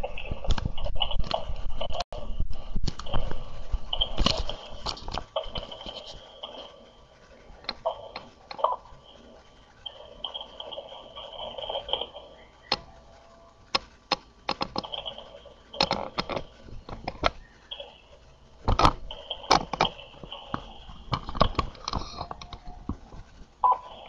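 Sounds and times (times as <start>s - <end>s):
faint wavering background noise: 0.0s - 24.0s
sharp clicks and knocks: 13.7s - 15.2s, 15.8s - 17.4s, 18.6s - 23.3s.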